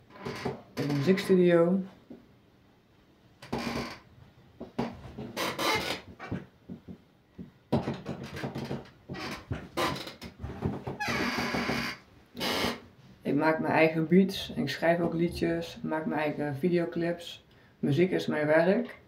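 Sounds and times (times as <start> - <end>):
phone handling knocks and rubs: 4.6 - 11.0.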